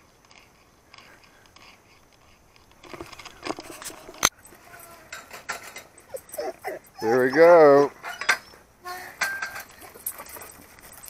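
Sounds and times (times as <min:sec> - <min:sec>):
gate latch rattling and clinking: 0:05.1 - 0:07.0
sharp metallic clank: 0:09.2 - 0:10.1.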